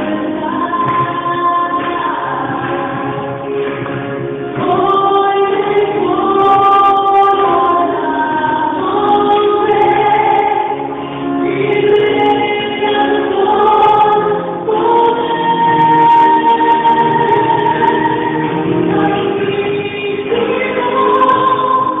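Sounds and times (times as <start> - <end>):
musical backing: 0.0 - 22.0
choir singing: 4.6 - 22.0.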